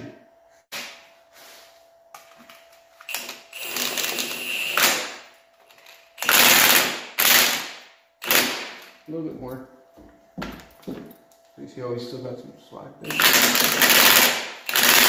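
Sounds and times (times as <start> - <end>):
impact wrench bursts: 3.0 - 9.0, 13.0 - 15.0.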